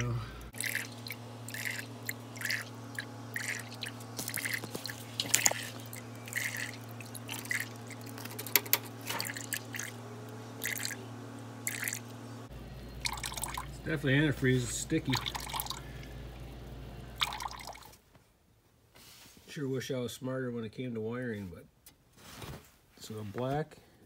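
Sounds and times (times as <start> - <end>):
liquid dripping from radiator: 0.0 - 11.0, 11.6 - 12.1, 13.0 - 18.0
steady low hum: 0.0 - 18.0.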